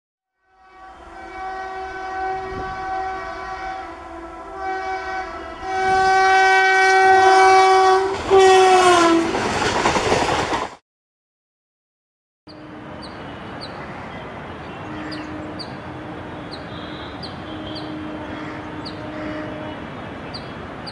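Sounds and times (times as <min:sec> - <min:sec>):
train horn blasts: 0:00.3 - 0:09.4, 0:12.5 - 0:13.5, 0:14.7 - 0:20.4
train rushing and rattling past: 0:00.6 - 0:10.8, 0:12.5 - 0:20.9.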